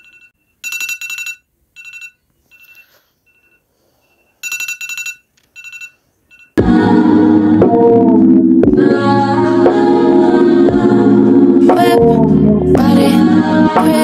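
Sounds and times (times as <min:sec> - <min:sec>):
loud music: 0:06.6 - 0:14.0.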